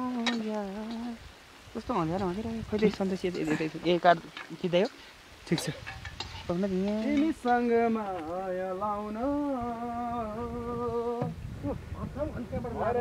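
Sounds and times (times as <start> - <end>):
person singing slow tune: 0.0 - 1.4, 6.5 - 11.8.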